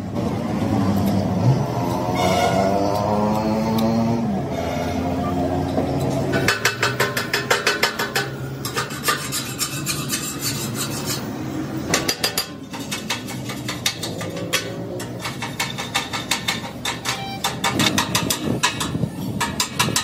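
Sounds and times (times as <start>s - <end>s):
putty knife scraping on steel: 6.4s - 11.3s.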